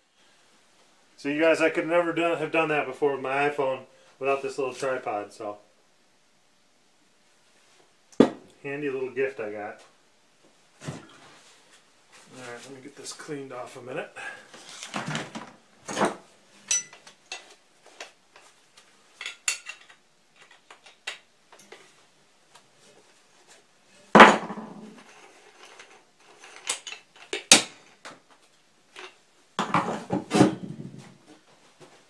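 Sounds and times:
tools clattering: 14.6 - 18.5, 19.2 - 21.0, 24.2 - 27.6
metal tools clanking on steel table: 15.9 - 17.5, 19.2 - 21.0.

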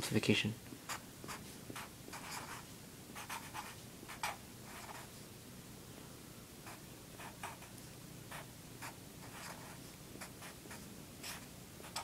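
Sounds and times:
felt-tip marker writing on paper: 0.9 - 2.6, 3.2 - 5.1, 8.3 - 12.0.

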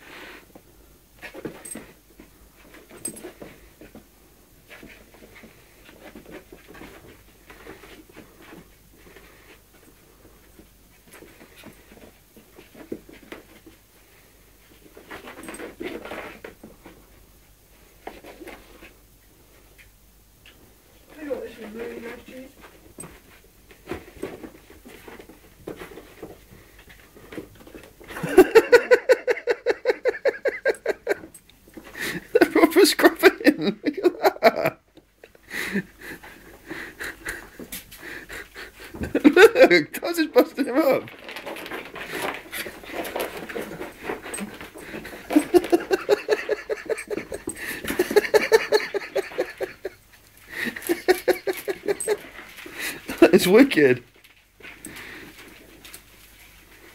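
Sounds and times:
person laughing loudly: 28.1 - 31.3, 32.0 - 34.8, 35.5 - 40.8, 45.1 - 53.4.

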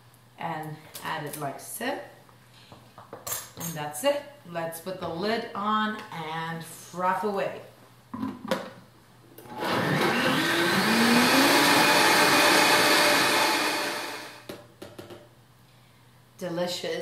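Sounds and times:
blender motor whining: 9.5 - 14.5.

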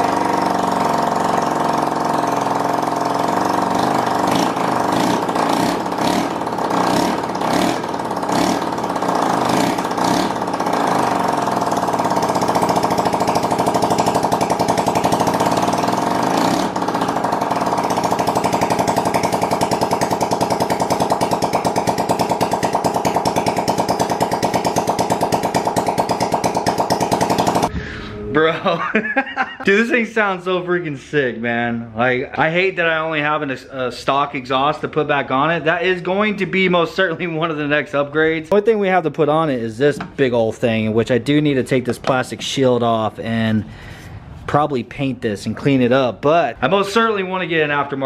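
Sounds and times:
scooter engine loud rapid popping: 0.0 - 27.7.

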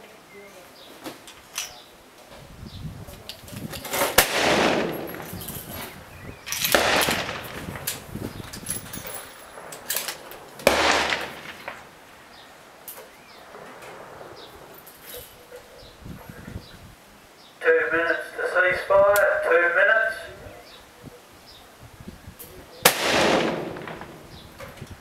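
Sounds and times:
rifle shots with rolling echo: 3.9 - 8.1, 9.2 - 12.5, 13.3 - 14.9, 22.8 - 24.7
faint cracks: 6.5 - 11.9.

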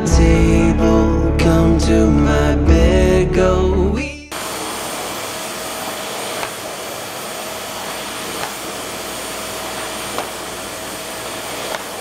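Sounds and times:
vacuum cleaner running: 4.3 - 12.0.

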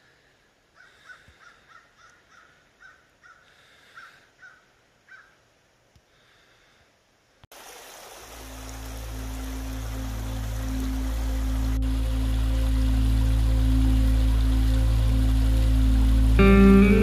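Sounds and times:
crow cawing: 0.8 - 5.4
flowing creek: 7.5 - 17.0.

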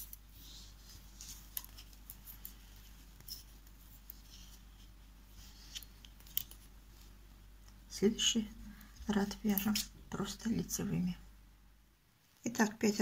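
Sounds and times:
knitting needles clicking: 5.7 - 6.6.

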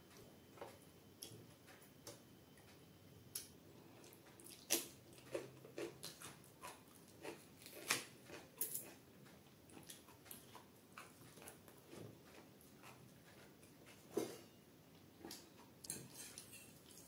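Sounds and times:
chewing clicks and smacks: 1.2 - 14.0.

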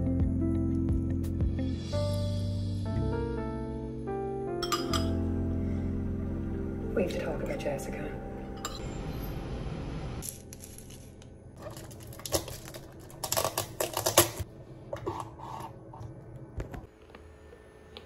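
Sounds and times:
plastic crinkling: 11.6 - 14.5.

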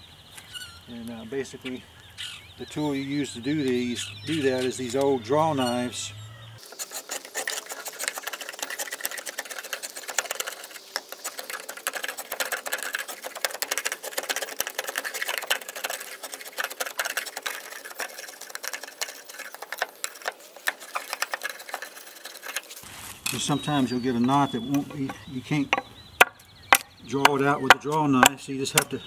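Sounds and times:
draw knife scraping wood: 6.6 - 22.8.

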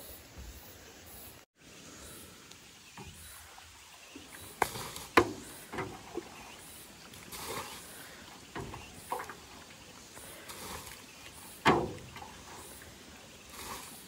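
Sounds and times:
short rustle: 4.3 - 14.0
sharp knocks and clunks: 4.6 - 6.3, 8.5 - 9.6, 11.5 - 12.8.

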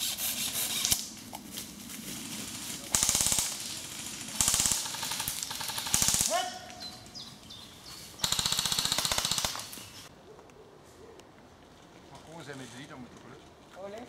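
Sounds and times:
airsoft rifles firing bursts: 2.9 - 6.4, 8.2 - 10.1.

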